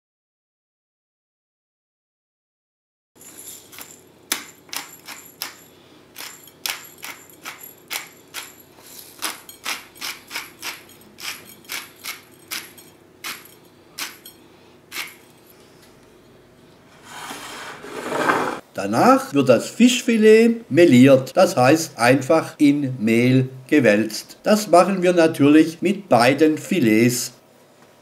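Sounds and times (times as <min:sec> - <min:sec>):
pepper mill grinding: 0:03.2 - 0:15.5.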